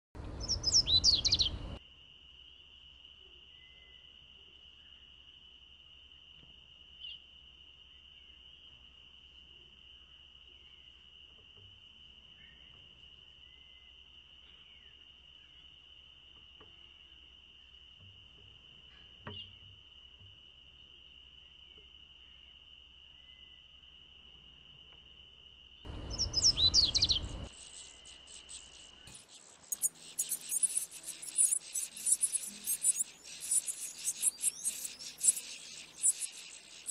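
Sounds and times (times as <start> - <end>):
bird singing: 0.2 - 1.8, 3.3 - 4.2, 12.2 - 15.7, 25.8 - 36.9
high insect-like trill: 25.9 - 36.9.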